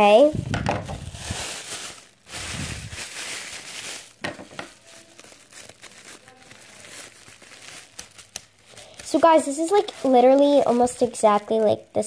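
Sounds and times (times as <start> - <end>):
plastic bag crinkling: 0.0 - 12.0.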